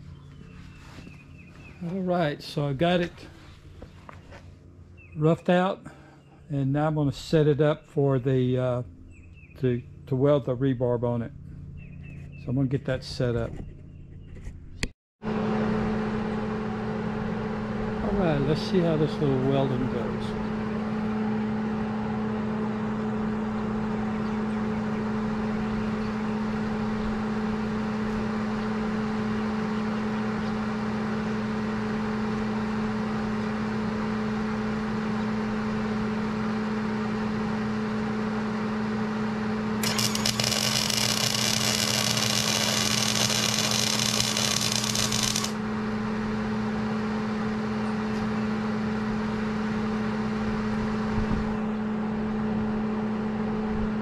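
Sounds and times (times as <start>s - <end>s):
steady machine hum: 0.0s - 54.0s
welder arc buzzing and crackling: 39.8s - 45.7s.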